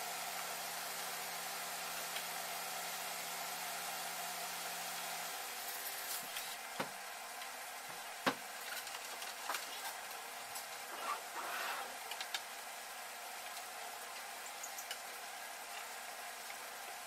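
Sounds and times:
scraping rustle: 8.6s - 12.3s.

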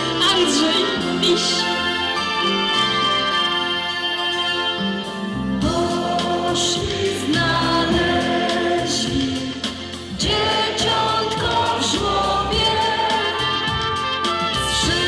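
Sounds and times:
instrumental backing music: 0.0s - 15.0s
choir singing a carol: 5.6s - 15.0s.

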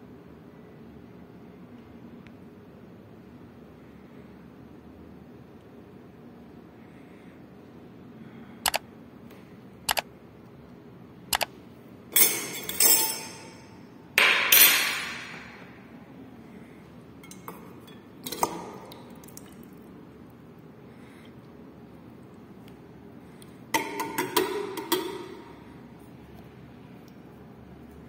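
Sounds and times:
metal clinks and clanks: 12.1s - 13.7s.

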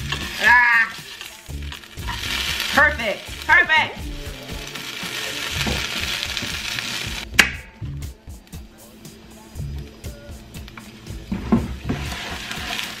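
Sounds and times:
spatula stirring in skillet: 0.0s - 7.1s, 11.3s - 13.0s
hash browns sizzling in oil: 0.0s - 7.4s, 10.1s - 13.0s.

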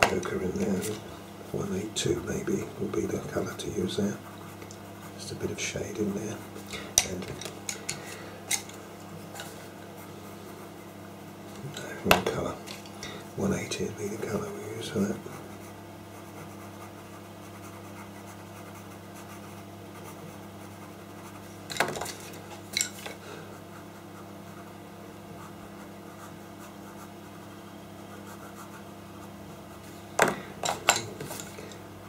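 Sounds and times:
pastel pencil scratching on paper: 0.0s - 6.8s, 13.5s - 21.6s, 23.5s - 30.0s.

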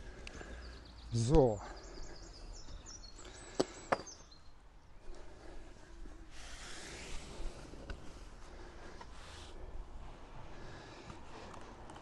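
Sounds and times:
faint bird chirps: 0.3s - 5.0s.

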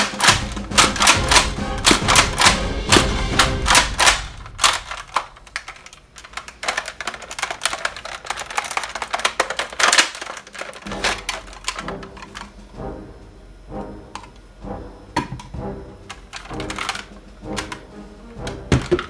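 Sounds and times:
faint background music: 0.0s - 5.8s, 6.6s - 19.0s
plastic toy blaster clacking: 0.0s - 12.5s, 16.1s - 17.9s.

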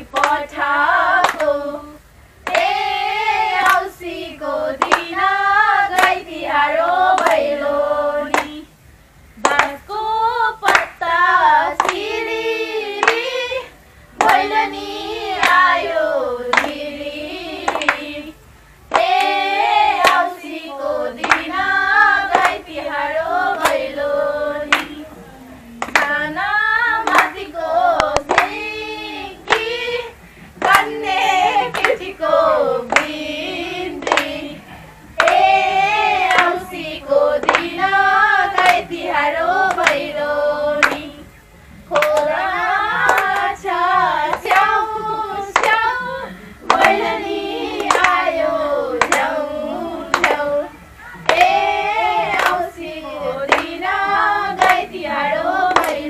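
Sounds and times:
hands clapping in time: 0.0s - 0.6s, 1.2s - 1.6s, 2.4s - 2.8s, 3.5s - 3.9s, 4.7s - 5.2s, 5.9s - 6.2s, 7.1s - 7.6s, 8.3s - 8.6s, 9.4s - 10.0s, 10.6s - 11.1s, 11.7s - 12.0s, 13.0s - 14.7s, 15.3s - 16.8s, 17.6s - 18.1s, 18.9s - 20.4s, 21.2s - 23.9s, 24.7s - 25.0s, 25.8s - 26.2s, 27.0s - 28.7s, 29.4s - 34.6s, 35.2s - 40.2s, 40.8s - 41.2s, 41.9s - 56.0s
women singing together: 0.0s - 56.0s.

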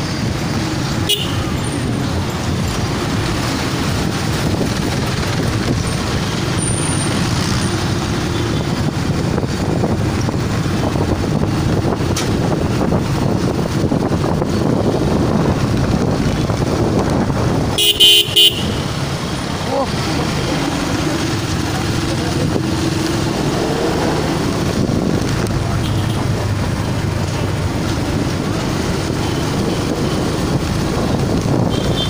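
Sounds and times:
car engine and road rumble: 0.0s - 32.0s.

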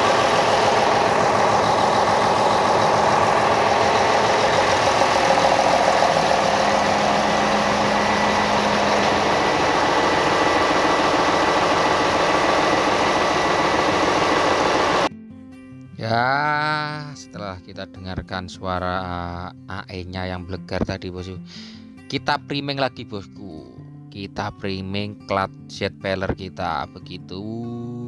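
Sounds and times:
diesel generator engine running: 0.0s - 15.1s.

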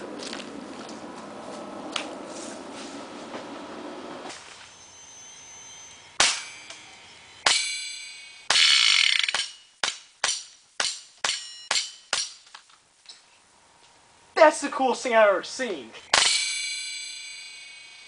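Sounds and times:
airsoft pistol shots: 6.2s - 6.5s
metallic clang of hits: 6.2s - 12.4s, 16.1s - 18.0s.

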